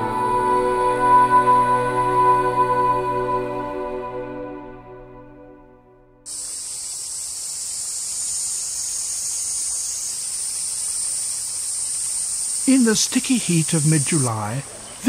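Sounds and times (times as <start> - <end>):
cicadas chorus: 6.3 - 15.0.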